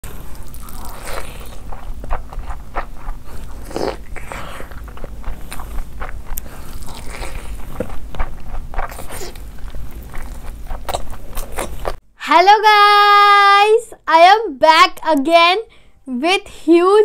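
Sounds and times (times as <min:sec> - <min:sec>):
crunchy bites: 0:00.0 - 0:12.0
person chewing food: 0:00.0 - 0:12.0.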